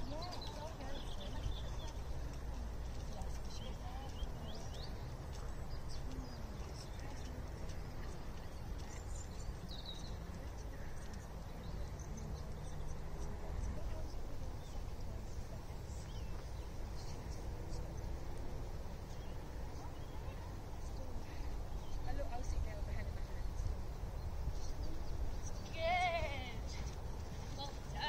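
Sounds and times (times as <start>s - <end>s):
horse hoofbeats on soft ground: 0.0s - 15.2s
small birds chirping: 0.0s - 28.0s.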